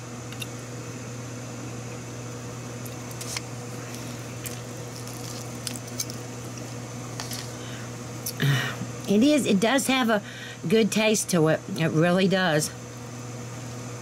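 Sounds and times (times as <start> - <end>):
steady hum: 0.0 - 14.0
knife cutting chicken squishing: 3.1 - 6.2.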